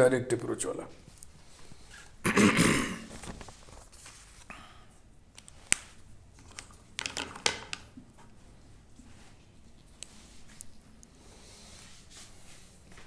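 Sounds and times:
rustling: 3.0s - 4.5s.

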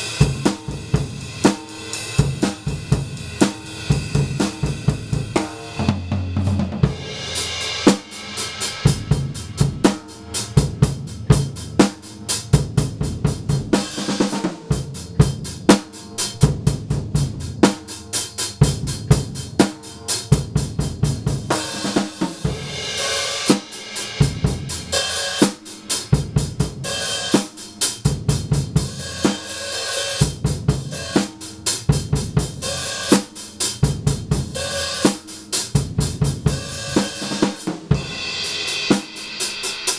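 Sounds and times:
hi-hat strokes: 0.0s - 5.8s, 6.9s - 39.9s
bass drum: 0.0s - 17.9s, 18.5s - 25.3s, 26.1s - 27.1s, 28.1s - 29.5s, 30.2s - 34.9s, 35.7s - 39.1s
snare drum: 3.4s - 10.3s, 21.5s - 25.8s, 36.4s - 38.2s, 38.9s - 39.9s
cymbal crashes ringing: 6.9s - 13.0s, 21.5s - 28.0s.

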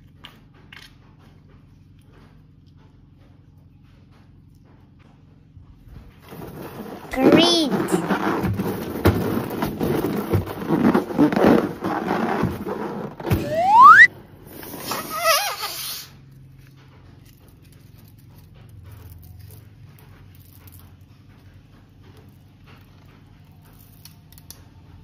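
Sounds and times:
balloon squeaking as rubbed: 6.7s - 14.1s, 14.8s - 16.1s
balloon rising squeal: 13.3s - 14.1s.

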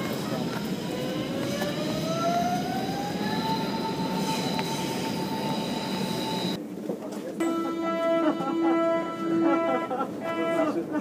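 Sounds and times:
rising whine: 0.0s - 6.6s
train rumbling: 0.0s - 6.8s, 7.4s - 11.0s.

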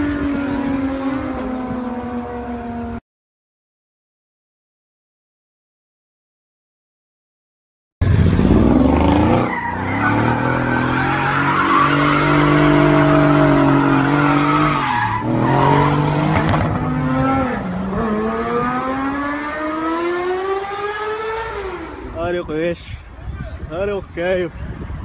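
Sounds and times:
car engine revving: 8.0s - 22.2s.

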